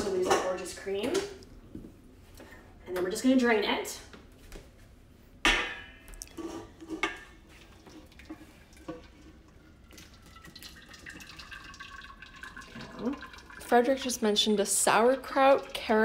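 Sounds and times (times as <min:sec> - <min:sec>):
cookware clanking: 0:05.5 - 0:07.4
liquid trickling through colander: 0:06.2 - 0:16.0.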